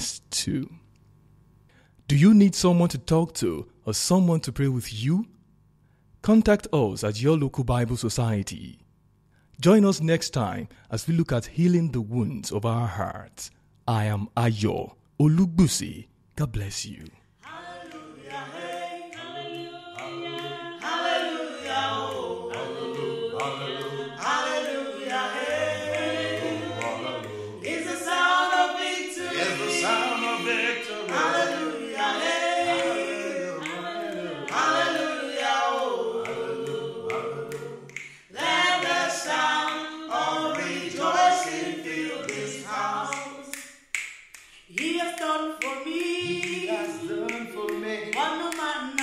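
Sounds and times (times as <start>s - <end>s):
choir singing in harmony: 17.4s - 43.6s, 45.7s - 49.0s.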